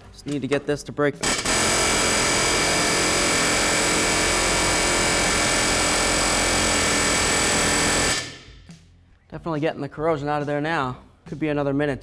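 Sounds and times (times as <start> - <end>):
air chisel hammering metal: 1.2 - 8.6.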